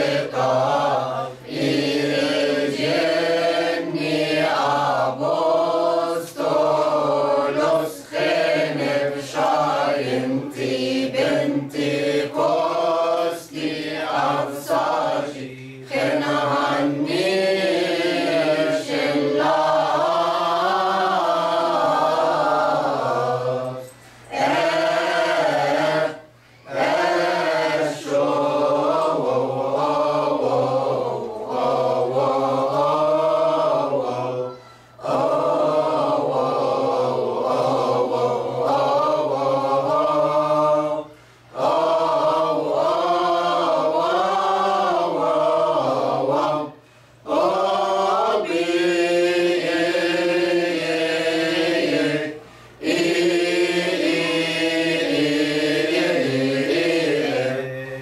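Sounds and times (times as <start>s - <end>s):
mixed choir chanting a hymn: 0.0s - 58.0s.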